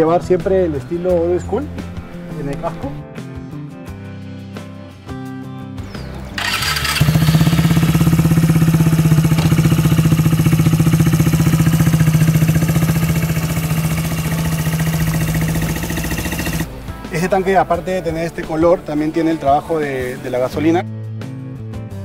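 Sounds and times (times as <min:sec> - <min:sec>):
motorcycle engine starting and idling: 0:06.2 - 0:18.4.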